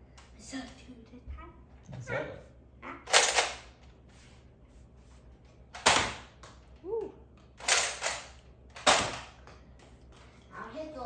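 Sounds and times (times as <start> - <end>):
foam dart blaster shots: 5.8 - 6.3.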